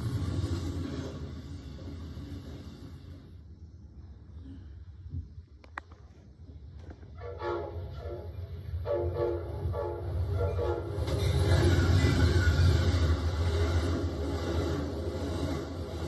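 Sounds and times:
train passing rumble: 0.0 - 16.0
train horn blasts: 7.2 - 11.2.

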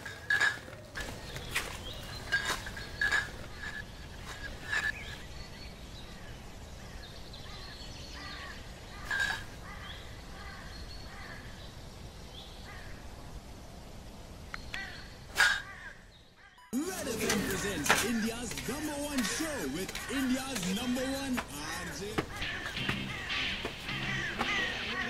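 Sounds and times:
birds chirping: 0.0 - 25.0
outdoor background noise: 0.0 - 25.0.

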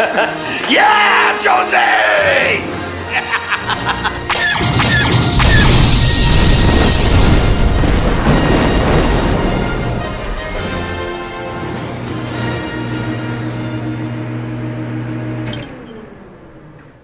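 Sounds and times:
soundtrack music: 1.3 - 14.6
explosion with deep rumble: 4.6 - 10.9.

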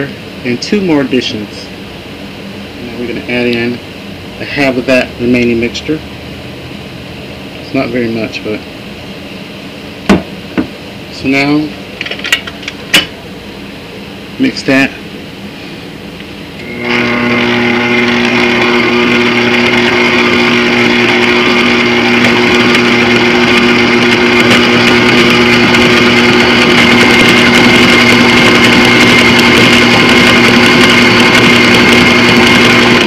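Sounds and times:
stand mixer humming and whining: 16.6 - 33.0.

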